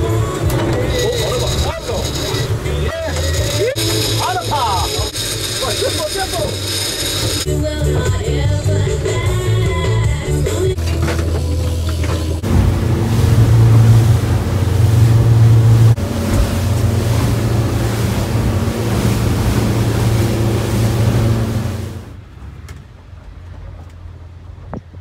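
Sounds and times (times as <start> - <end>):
motorboat engine drone: 0.0 - 22.4
wind and water rushing over hull: 10.5 - 25.0
low steady hum: 10.8 - 22.2.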